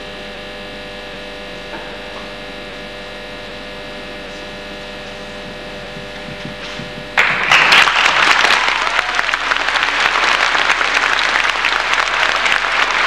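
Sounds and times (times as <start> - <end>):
audience applause: 7.2 - 13.0.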